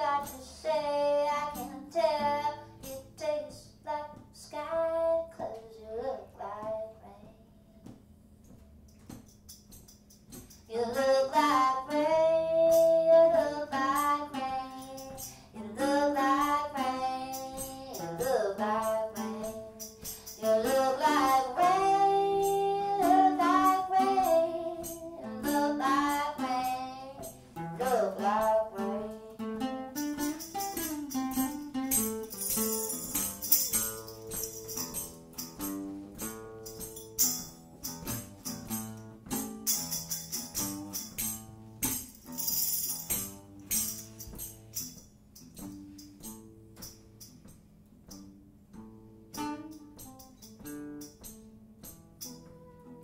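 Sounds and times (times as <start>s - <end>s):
guitar: 0.0s - 53.0s
tambourine shaking: 8.5s - 11.6s, 12.6s - 48.4s, 49.3s - 52.7s
person singing: 10.7s - 29.4s.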